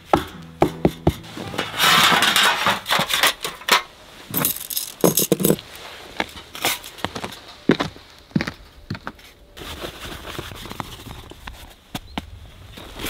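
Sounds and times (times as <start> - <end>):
rustling scrape: 1.2 - 6.9
knocks and light clinks: 3.1 - 5.6.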